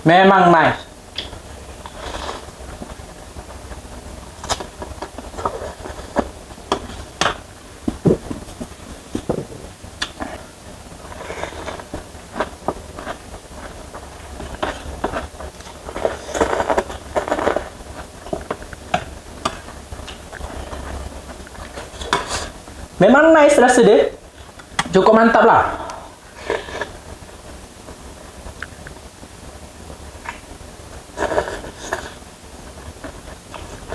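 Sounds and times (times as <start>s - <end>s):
steady low hum: 0.0s - 33.9s
noodles slurped and chewed: 11.1s - 17.8s, 31.1s - 32.2s.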